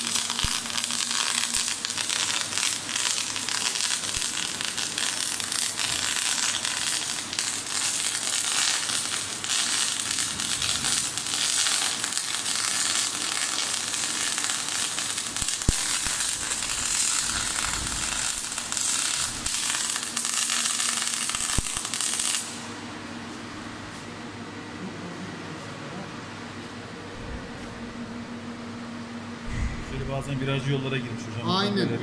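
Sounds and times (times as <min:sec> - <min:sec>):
welding arc crackling: 0:00.0 - 0:22.7.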